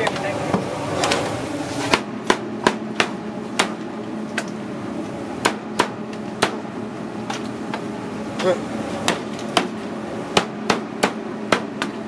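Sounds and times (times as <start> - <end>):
cleaver chopping on wooden board: 1.9 - 3.8, 8.4 - 9.8, 10.4 - 12.0.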